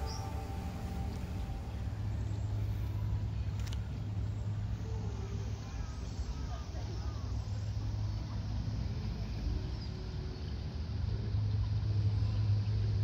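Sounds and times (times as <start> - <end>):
bird chirp: 0.0 - 3.2
faint hiss: 0.0 - 13.0
low motor hum: 0.0 - 13.0.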